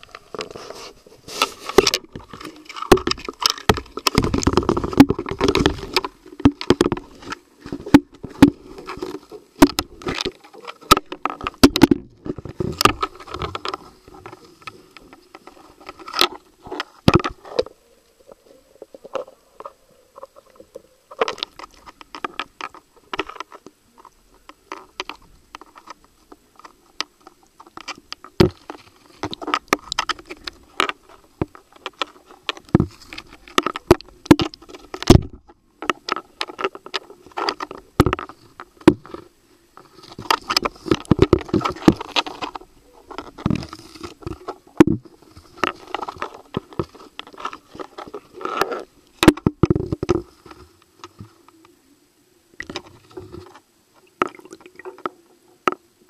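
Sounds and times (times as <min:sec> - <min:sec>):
objects rubbing against microphone: 0:00.0 - 0:06.2.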